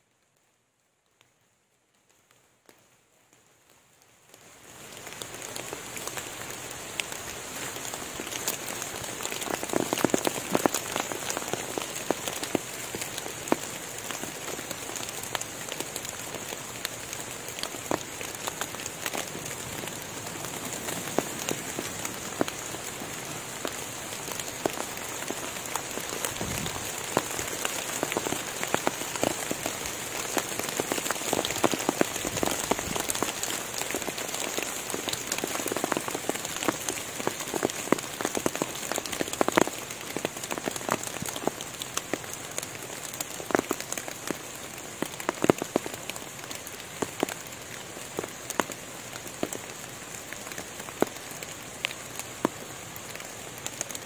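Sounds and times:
rain on foliage: 0.0 - 54.0
steady high-pitched hiss: 0.0 - 54.0.

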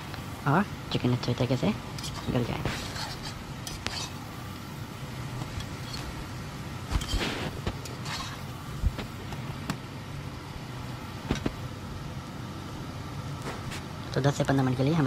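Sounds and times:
steady low hum: 0.0 - 15.0
spatula scraping a pan: 2.0 - 4.3, 7.0 - 8.5.

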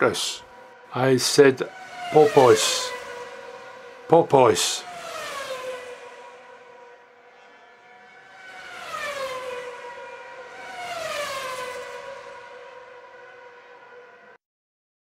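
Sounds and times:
siren-like wailing tone: 0.0 - 4.3.

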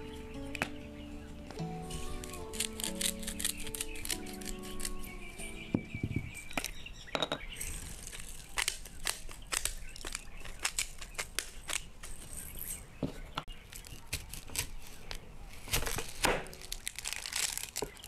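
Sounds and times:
bird chirps: 0.0 - 14.1.

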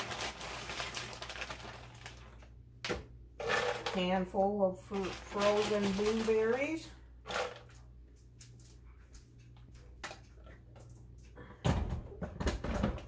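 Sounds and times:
frozen berries rattling into jar: 0.0 - 2.4, 3.4 - 7.8.

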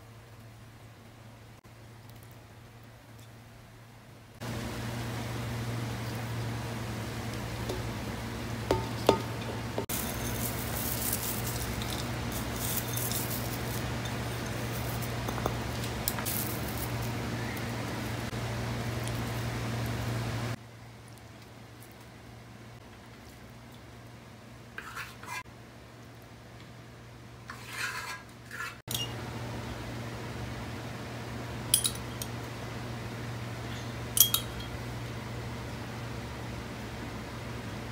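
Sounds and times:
steady low hum: 0.0 - 27.5
crisp fried onions pattering: 5.6 - 20.4
spatula scraping steel pot: 24.8 - 25.4, 27.5 - 29.1
metal bowl clinking against pot: 34.2 - 34.8.

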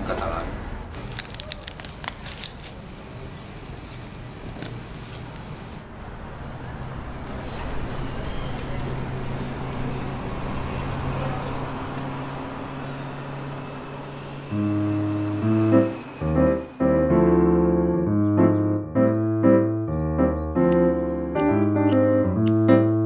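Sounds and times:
traffic noise: 0.0 - 23.0
vehicle engine hum: 3.0 - 19.8
faint voices of passers-by: 5.8 - 16.7.

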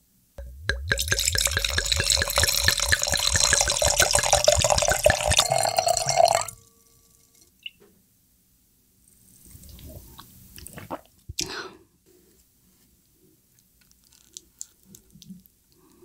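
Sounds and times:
wine glugging into glass: 0.4 - 6.6.

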